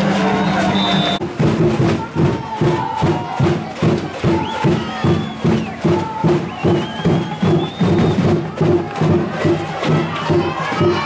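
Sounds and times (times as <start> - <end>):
horn-like notes: 0.0 - 1.2
crowd noise: 0.0 - 11.0
drum beating steadily: 0.0 - 11.0.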